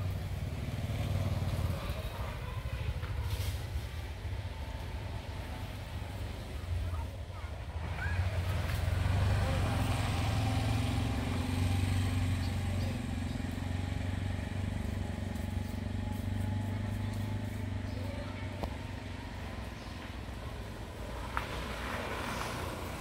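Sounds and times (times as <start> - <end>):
engine droning: 0.0 - 23.0.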